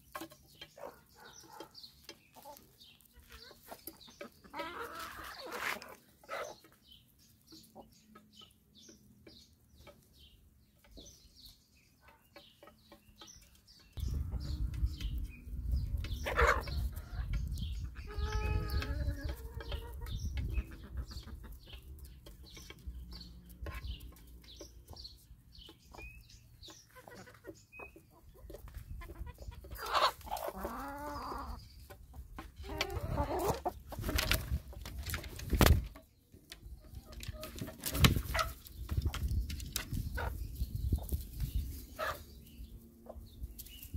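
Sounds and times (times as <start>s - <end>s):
hens clucking: 0.0s - 43.9s
low microphone rumble: 14.0s - 19.2s.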